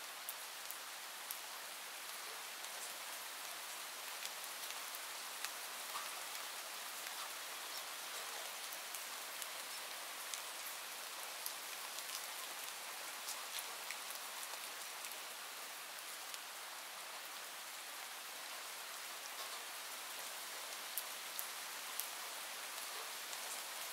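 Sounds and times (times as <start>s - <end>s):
steady rain: 0.0s - 23.9s
rain drop ticks: 5.4s - 8.4s.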